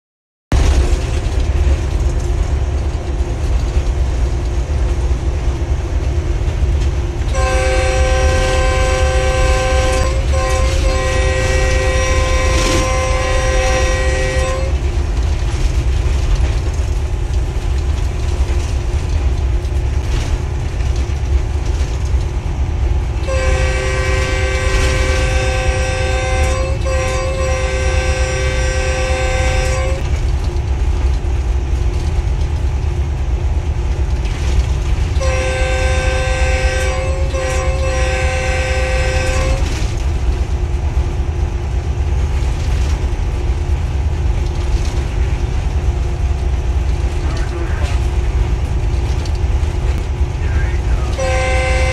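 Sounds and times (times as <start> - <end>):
diesel locomotive engine rumble: 0.5 - 51.9
multi-tone train horn: 7.2 - 15.0, 23.2 - 30.2, 35.2 - 40.0, 47.2 - 48.1, 50.4 - 51.9.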